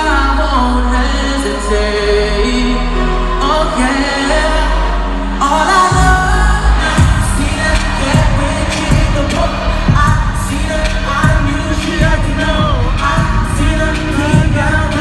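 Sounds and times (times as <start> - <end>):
person singing: 0.0 - 15.0
deep bass beat: 5.9 - 15.0.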